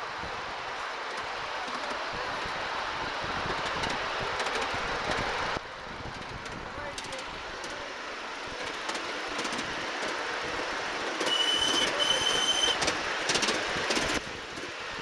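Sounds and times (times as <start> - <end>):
miniature train wheels clicking: 8.5 - 14.8
high train whistle: 11.2 - 12.8.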